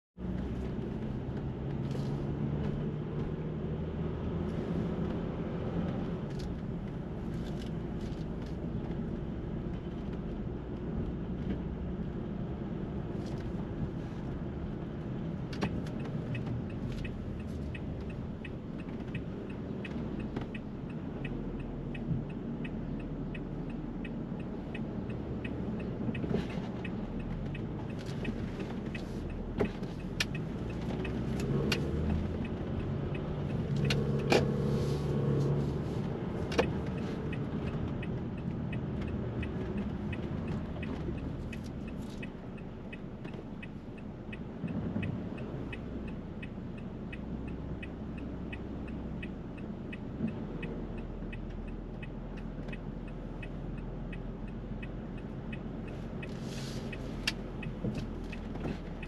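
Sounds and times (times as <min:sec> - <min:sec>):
street traffic rumble: 0:00.2 - 0:59.0.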